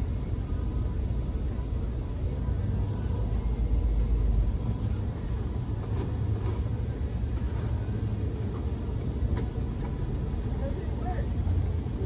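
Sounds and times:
low rumble in car cabin: 0.0s - 12.0s.

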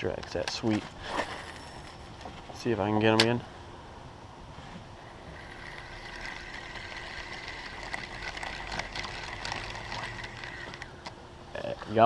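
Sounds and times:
electric trolling motor whine: 4.8s - 11.2s
fishing reel clicking: 5.0s - 11.1s.

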